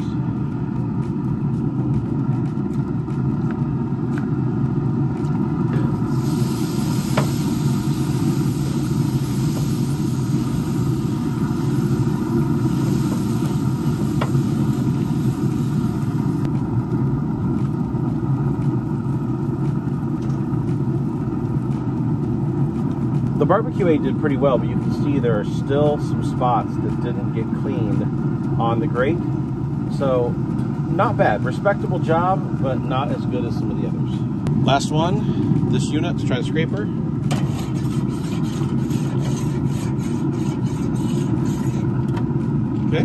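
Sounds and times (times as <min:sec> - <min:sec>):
wire brush scrubbing grill grates: 0:37.3 - 0:42.0.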